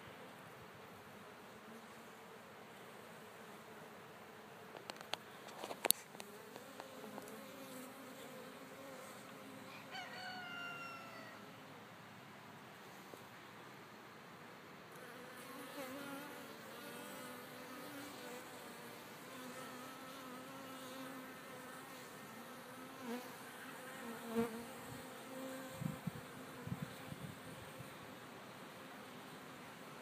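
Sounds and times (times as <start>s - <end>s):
honey bees buzzing: 5.8s - 9.7s, 15.1s - 28.0s.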